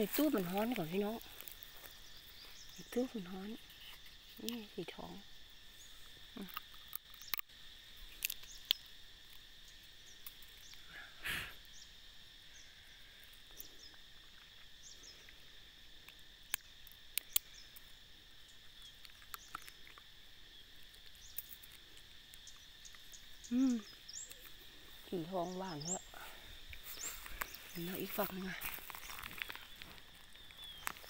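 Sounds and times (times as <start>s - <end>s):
insect drone: 0.0s - 31.0s
bird chirps: 22.4s - 31.0s
rustling: 26.3s - 31.0s.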